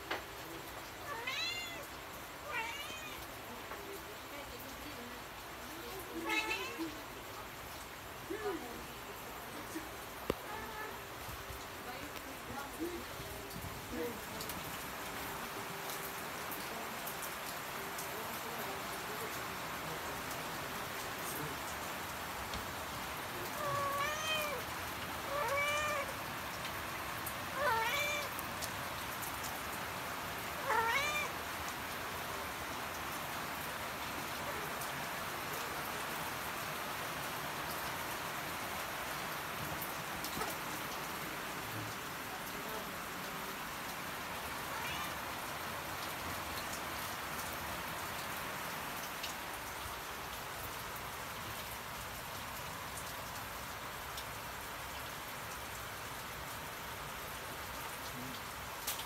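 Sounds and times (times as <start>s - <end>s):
cat meowing: 1.0s - 3.4s, 6.1s - 7.0s, 23.4s - 26.2s, 27.5s - 28.4s, 30.6s - 31.4s, 44.7s - 45.2s.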